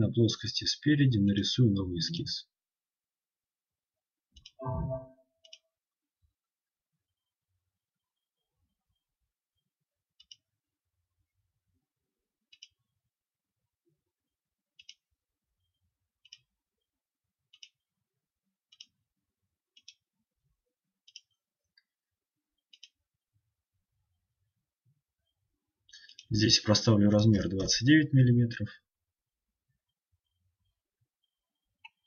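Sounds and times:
computer mouse clicks: 0:10.2 - 0:10.4, 0:12.5 - 0:12.8, 0:14.8 - 0:15.0, 0:16.2 - 0:16.5, 0:17.5 - 0:17.8, 0:18.7 - 0:19.0, 0:19.8 - 0:20.0, 0:21.1 - 0:21.4, 0:22.7 - 0:23.0.

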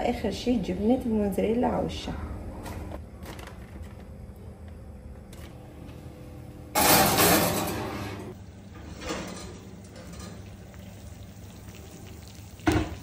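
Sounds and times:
kitchenware scraping and clattering: 0:06.8 - 0:10.6.

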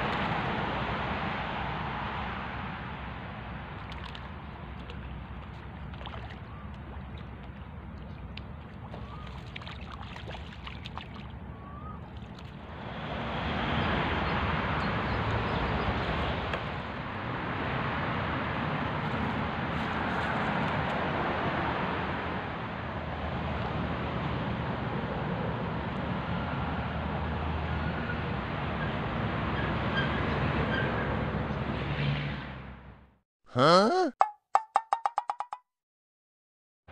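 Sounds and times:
faint bird chirps: 0:11.5 - 0:12.1.

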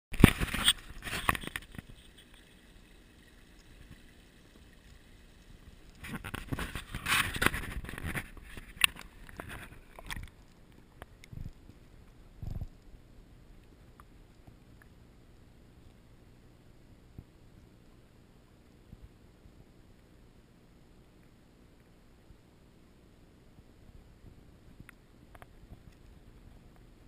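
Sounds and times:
water splashing and sloshing: 0:00.1 - 0:12.8
camera handling rustles and knocks: 0:00.2 - 0:02.1, 0:06.0 - 0:10.4.

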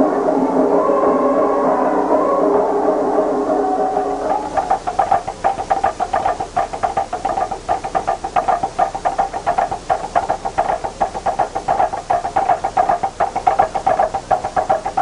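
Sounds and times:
fast ritual percussion: 0:04.2 - 0:15.0.

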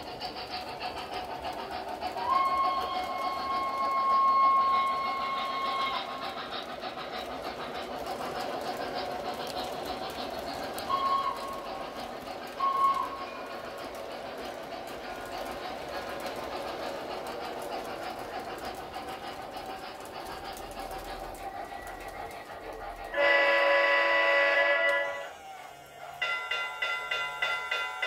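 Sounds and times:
model train rumbling on track: 0:00.0 - 0:28.0
electronic steam whistle blasts: 0:02.2 - 0:06.1, 0:10.9 - 0:11.7, 0:12.6 - 0:13.2, 0:23.1 - 0:28.0.

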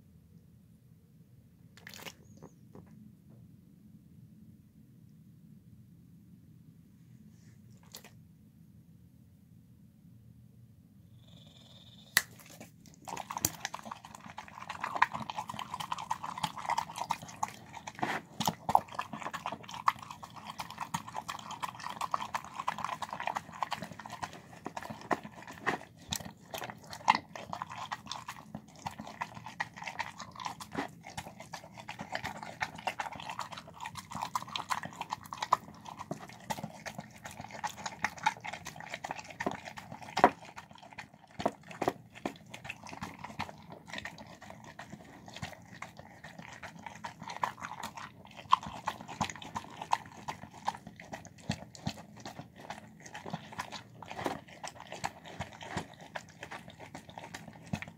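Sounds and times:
dog chewing and licking: 0:12.2 - 0:57.9.

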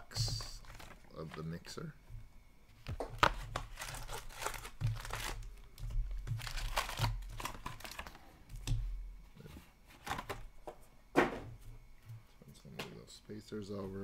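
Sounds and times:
foil and cardboard crinkling: 0:00.2 - 0:01.6, 0:02.8 - 0:08.8
foil tearing: 0:03.2 - 0:05.6, 0:06.2 - 0:08.2.

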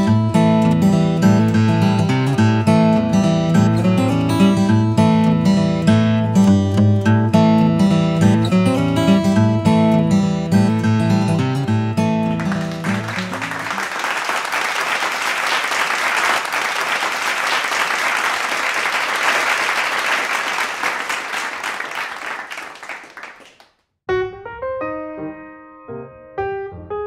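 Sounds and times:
acoustic guitar music: 0:00.0 - 0:13.8
piano music: 0:09.1 - 0:13.8, 0:24.1 - 0:27.0
crowd applause: 0:12.3 - 0:23.7.

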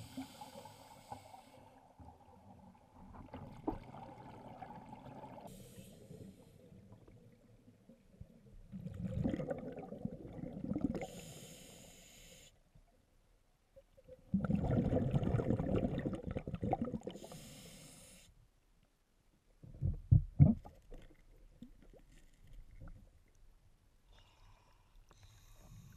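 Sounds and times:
regulator hiss on inhale: 0:00.0 - 0:01.8, 0:05.5 - 0:06.8, 0:11.0 - 0:12.6, 0:17.2 - 0:18.4, 0:24.1 - 0:25.9
gurgling exhaust bubbles: 0:14.4 - 0:17.1.

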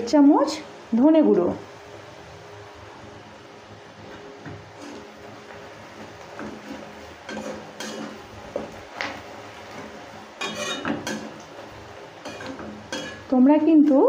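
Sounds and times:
spatula scraping metal pan: 0:06.4 - 0:08.2, 0:10.4 - 0:11.3, 0:12.2 - 0:13.3.

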